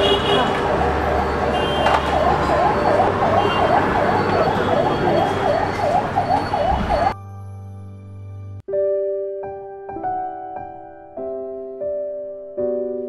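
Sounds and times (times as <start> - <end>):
busy street noise: 0.0 - 7.2
electronic siren sweeping: 0.2 - 7.2
soft keyboard music: 2.2 - 13.0.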